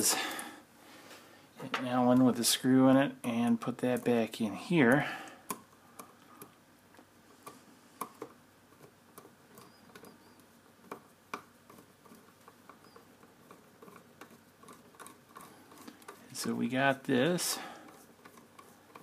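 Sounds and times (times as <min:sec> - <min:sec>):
small clicks and scratches: 0:05.4 - 0:19.0.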